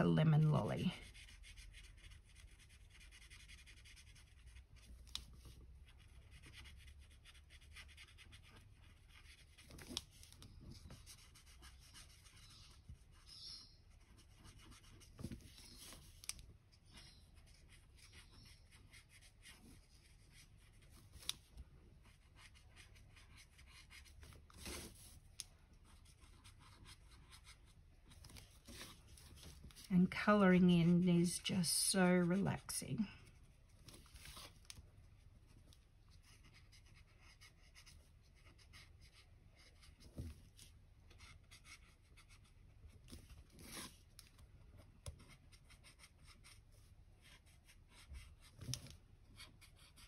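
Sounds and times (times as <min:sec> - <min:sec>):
marker scratching on card: 0:01.0 - 0:10.2, 0:10.8 - 0:21.4, 0:22.0 - 0:25.2, 0:25.9 - 0:27.8, 0:36.2 - 0:40.0, 0:41.1 - 0:42.6, 0:45.1 - 0:46.6, 0:49.4 - 0:50.0.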